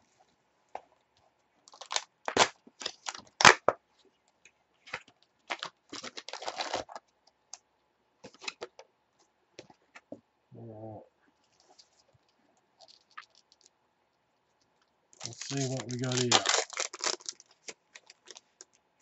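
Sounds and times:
cardboard tearing and crinkling: 1.7s - 3.7s, 5.5s - 7.0s, 15.2s - 18.4s.

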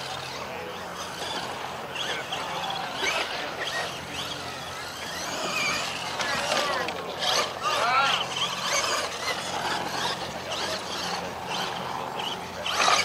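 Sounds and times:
toy truck electric motor whining: 0.0s - 13.0s.

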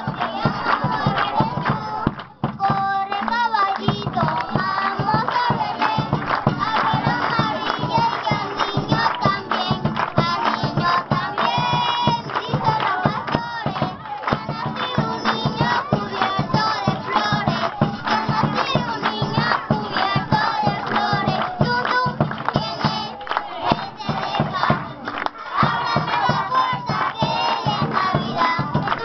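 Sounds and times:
children clapping: 0.0s - 29.0s
children singing into a microphone: 0.0s - 29.0s.

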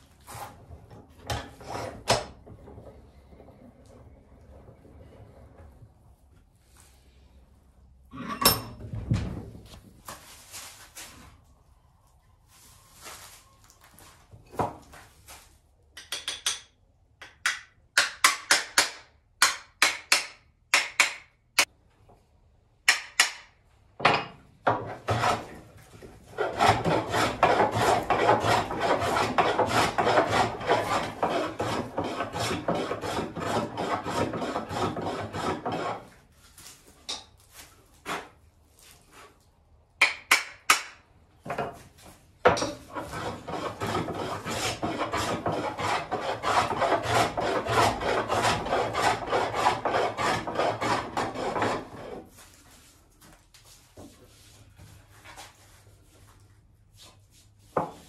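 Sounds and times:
rasp on wood: 1.3s - 2.3s, 24.7s - 25.6s, 26.2s - 36.2s, 42.5s - 52.3s.

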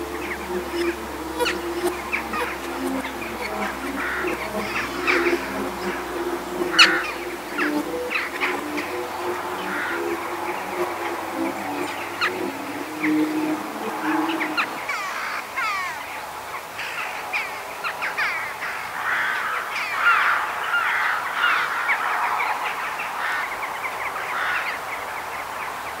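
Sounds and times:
flock of birds calling: 0.0s - 26.0s.

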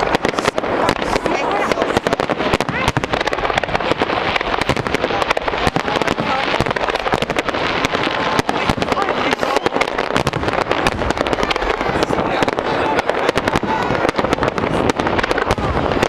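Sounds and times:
fireworks bursts and bangs: 0.0s - 16.0s.

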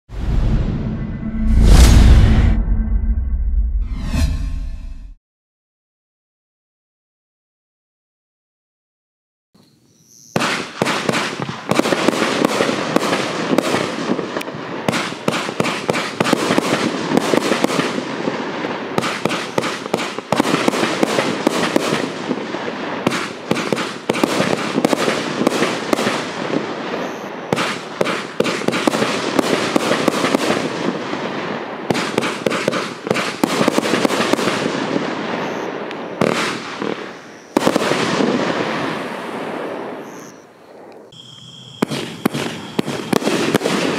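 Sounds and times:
firework cake popping: 41.8s - 43.9s.

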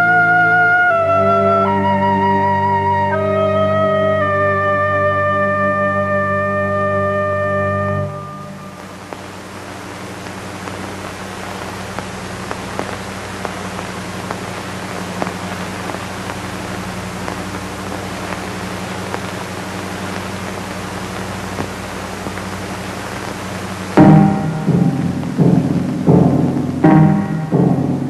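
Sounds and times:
low steady hum: 0.0s - 28.0s
rain-like hiss: 3.0s - 28.0s
faint clicks: 10.2s - 16.6s, 17.2s - 23.5s.

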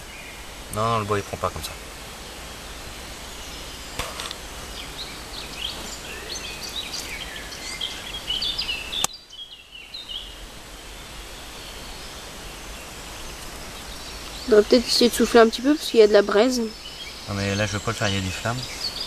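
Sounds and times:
songbird chirping: 0.0s - 19.0s
wind hiss: 0.0s - 19.0s
sharp click: 4.0s - 4.4s.

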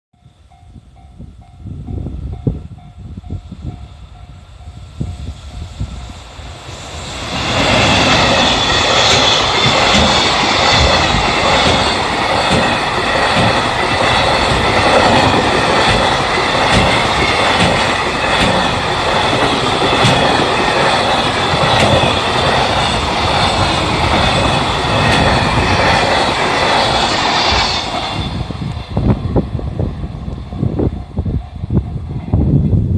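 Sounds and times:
freight train wheels clattering: 5.0s - 32.6s.

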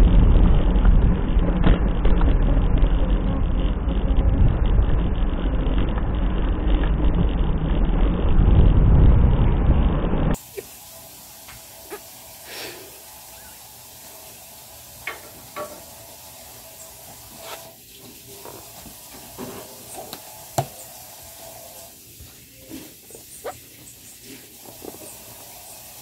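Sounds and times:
steady low hiss: 10.4s - 26.0s
breath puffs into balloon: 12.4s - 13.0s.

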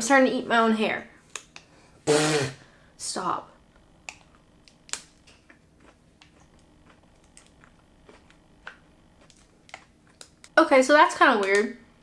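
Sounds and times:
chocolate snapping: 1.3s - 1.7s, 4.0s - 10.6s
chewing crunches: 4.1s - 10.6s.

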